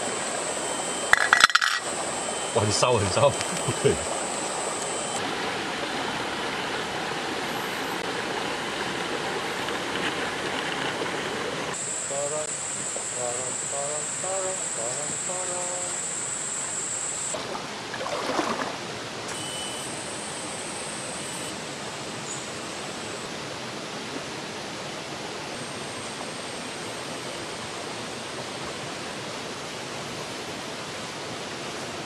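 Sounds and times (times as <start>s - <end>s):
high insect drone: 0.0s - 17.4s, 18.3s - 32.0s
stream running over rocks: 1.1s - 12.4s, 17.3s - 19.3s, 21.6s - 32.0s.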